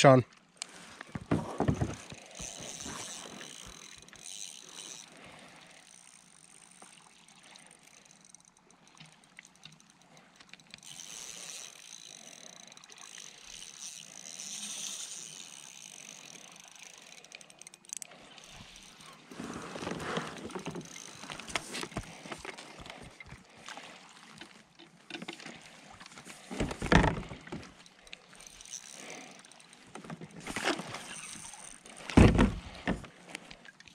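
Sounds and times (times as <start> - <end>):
fishing reel gears whirring: 0.6 - 33.9.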